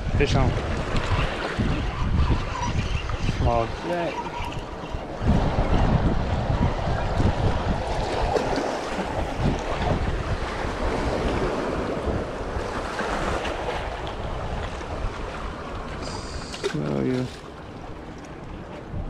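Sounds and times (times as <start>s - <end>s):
wind buffeting microphone: 0.0s - 19.0s
surf washing against rocks: 3.4s - 18.5s.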